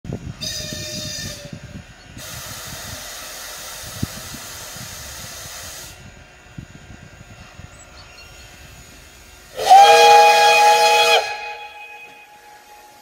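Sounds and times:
steam locomotive whistle: 0:00.4 - 0:01.6, 0:09.5 - 0:13.0
steam hissing: 0:02.2 - 0:06.1, 0:08.6 - 0:13.0.

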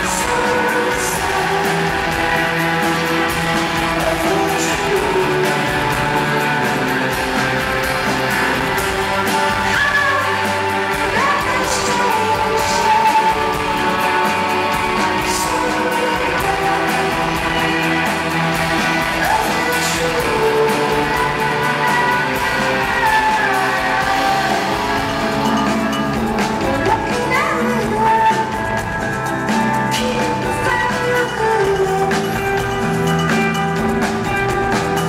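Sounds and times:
live rock band playing: 0:00.0 - 0:35.0
person singing: 0:00.0 - 0:35.0.

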